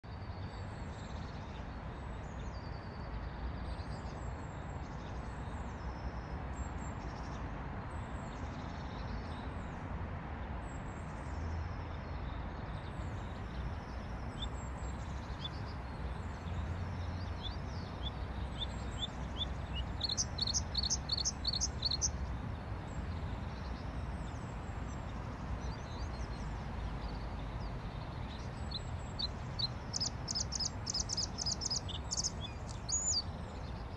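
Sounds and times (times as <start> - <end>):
bird singing chirps and whistles: 18.6 - 22.1, 28.7 - 33.3.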